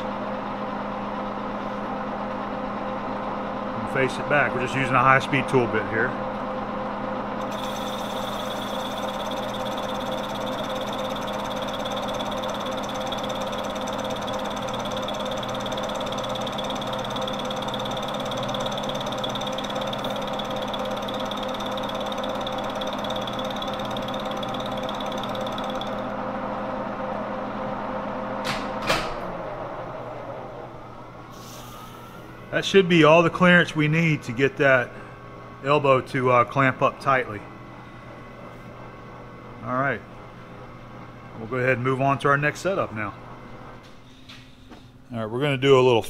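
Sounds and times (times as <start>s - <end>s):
thin high tone: 7.4s - 14.1s
lathe gears whining: 7.4s - 26.2s
lathe spindle winding down: 7.4s - 26.2s.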